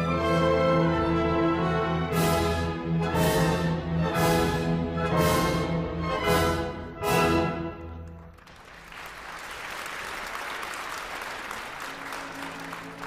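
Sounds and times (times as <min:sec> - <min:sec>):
orchestra chords: 0:00.0 - 0:08.4
soft held orchestral notes: 0:00.0 - 0:08.4
audience applauding: 0:08.0 - 0:13.0.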